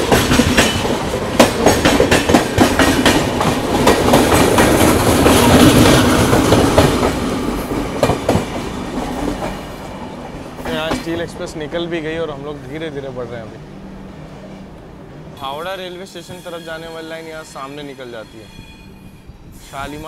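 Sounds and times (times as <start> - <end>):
train wheels clattering over rail joints: 0.0 - 9.7.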